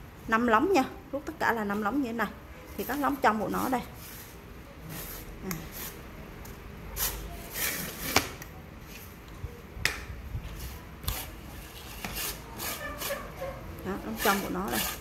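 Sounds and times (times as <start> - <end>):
tube sections sliding and rubbing: 2.8 - 6.1, 7.0 - 9.1, 10.5 - 15.0.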